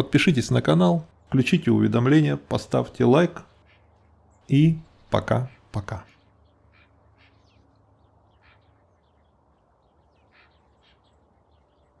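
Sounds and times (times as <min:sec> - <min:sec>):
distant ducks quacking: 0:03.4 - 0:11.7.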